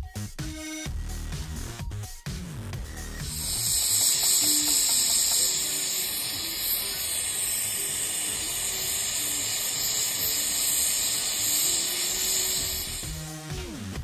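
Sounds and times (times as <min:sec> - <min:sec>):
gas torch flame hissing: 0:02.8 - 0:14.0.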